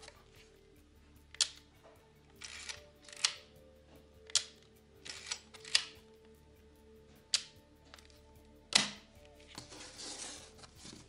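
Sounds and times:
background music: 0.0 - 11.0
camera shutter clicks: 4.4 - 6.0.

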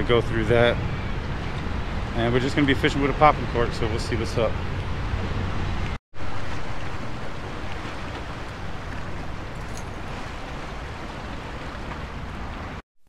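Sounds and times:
wind rumbling on microphone: 0.0 - 12.8
waves washing against rocks: 6.2 - 12.8.

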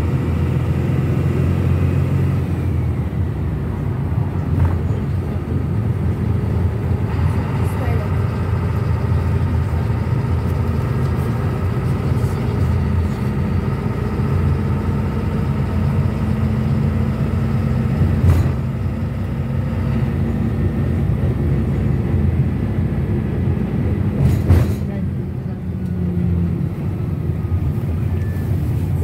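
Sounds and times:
engine drone: 0.0 - 29.0.

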